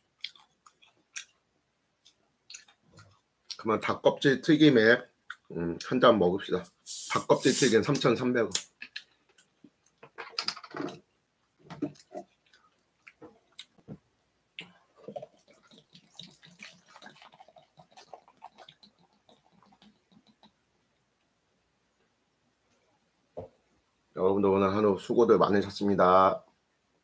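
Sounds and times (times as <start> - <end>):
beer pouring into plastic cup: 15.0 - 20.5.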